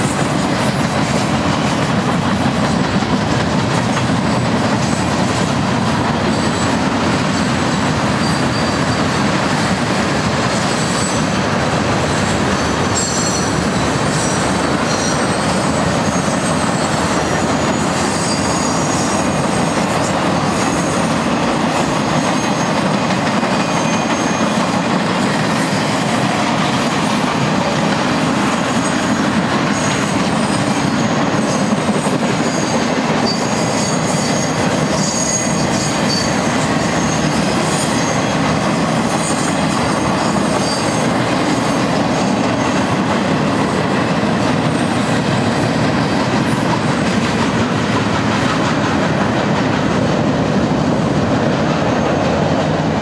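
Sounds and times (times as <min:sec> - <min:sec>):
train wheels rumbling on track: 0:00.0 - 0:53.0
high-pitched wheel squeals: 0:06.3 - 0:09.4, 0:10.5 - 0:21.1, 0:29.7 - 0:42.8.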